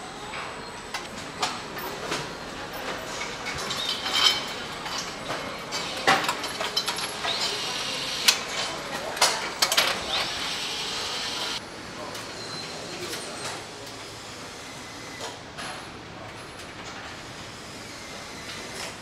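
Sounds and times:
factory background noise: 0:00.0 - 0:19.0
power tool whine: 0:10.0 - 0:11.6.

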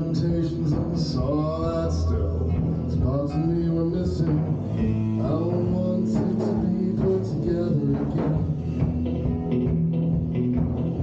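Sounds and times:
man singing: 0:00.0 - 0:08.7
bass guitar: 0:00.0 - 0:11.0
drums: 0:00.0 - 0:11.0
electric guitar: 0:00.0 - 0:11.0.

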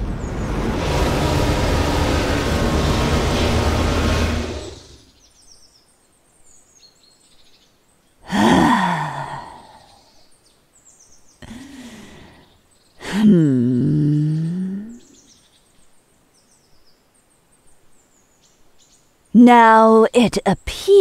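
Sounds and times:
loud rushing whoosh: 0:00.0 - 0:05.1
faint birdsong: 0:04.2 - 0:21.0
woman grunting with effort: 0:08.3 - 0:09.9, 0:11.4 - 0:12.2, 0:13.0 - 0:15.0.

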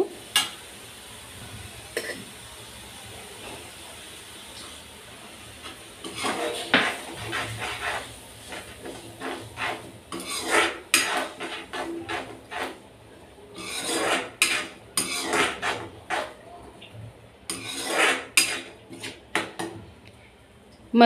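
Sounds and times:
paste frying in oil: 0:00.0 - 0:19.9
spatula scraping a metal pan: 0:05.6 - 0:12.8, 0:13.5 - 0:16.4, 0:17.5 - 0:19.8.

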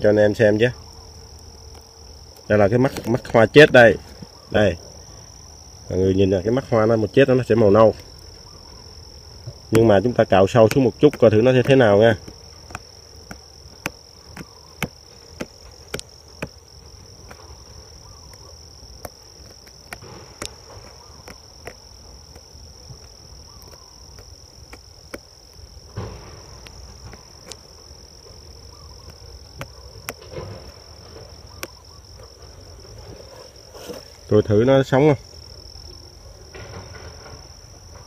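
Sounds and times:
insects trilling: 0:00.0 - 0:38.0
fingers scraping flower bud: 0:09.6 - 0:25.8.

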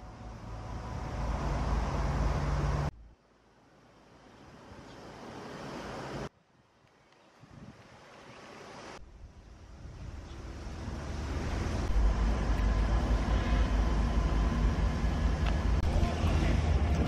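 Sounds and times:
wind rumbling on microphone: 0:07.3 - 0:17.0.

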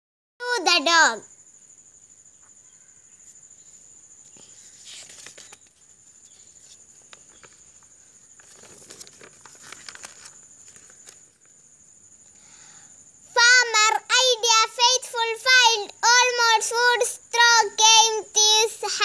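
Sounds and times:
paper rustling and crinkling: 0:04.3 - 0:11.6
small clicks and scrapes: 0:04.3 - 0:11.6.

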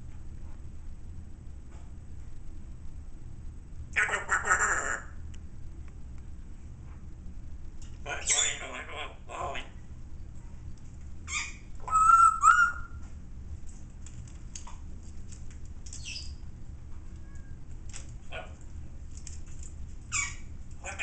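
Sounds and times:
parrot chirps: 0:04.0 - 0:05.1, 0:08.1 - 0:09.1, 0:11.3 - 0:13.0, 0:16.0 - 0:16.4, 0:20.1 - 0:20.5
parrot whistle-like calls: 0:11.3 - 0:13.0.

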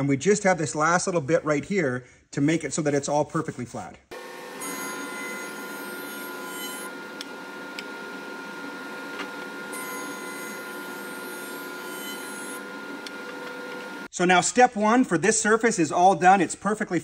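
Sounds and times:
cutterhead cutting wood: 0:04.1 - 0:08.0, 0:09.0 - 0:13.8
jointer running: 0:04.1 - 0:14.1.

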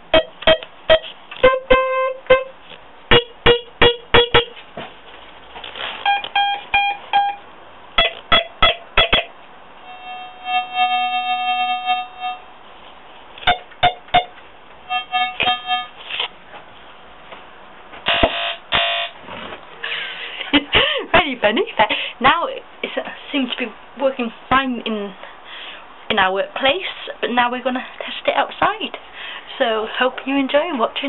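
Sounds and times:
electronic beeps: 0:06.1 - 0:07.4.

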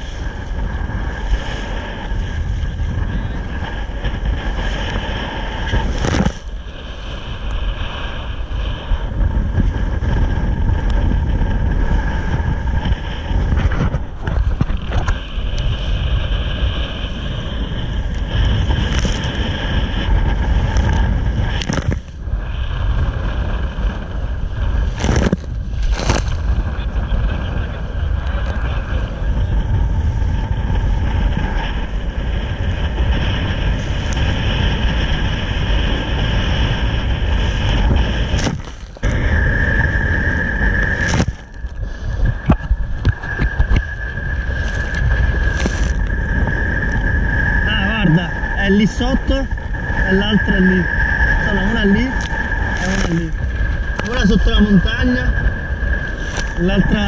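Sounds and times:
water rushing along a hull: 0:00.0 - 0:57.0
wind buffeting microphone: 0:00.0 - 0:57.0.

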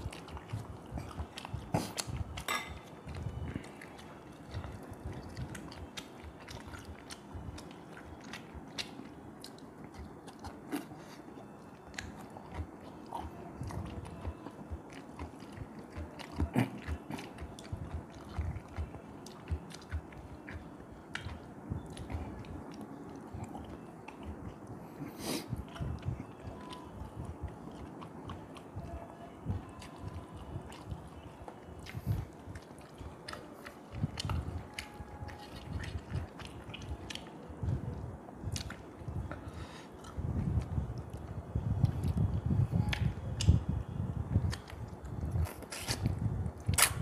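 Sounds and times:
man chewing and eating: 0:00.0 - 0:47.0
sharp mouth clicks: 0:42.9 - 0:43.6, 0:45.3 - 0:47.0.

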